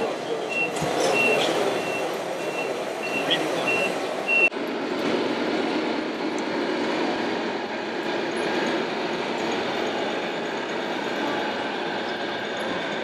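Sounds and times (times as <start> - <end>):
electronic reversing beep: 0.0 - 4.5
model trucks running: 0.0 - 13.0.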